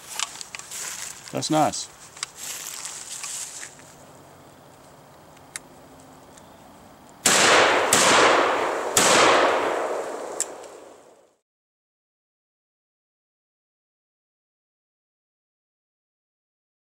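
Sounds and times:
shotgun blasts echoing: 7.2 - 11.2.

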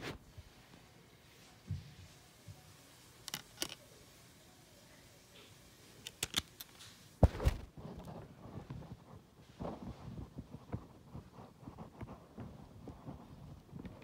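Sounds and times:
handling rustle: 6.0 - 14.0
plastic case clicks: 6.1 - 6.7.

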